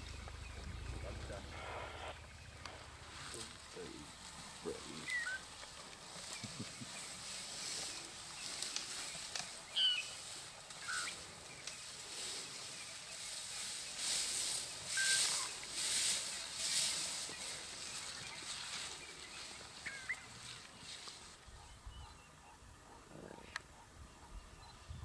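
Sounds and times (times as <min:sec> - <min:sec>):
rustling in dry grass: 0:00.0 - 0:21.9
bird chirps and whistles: 0:15.0 - 0:15.5.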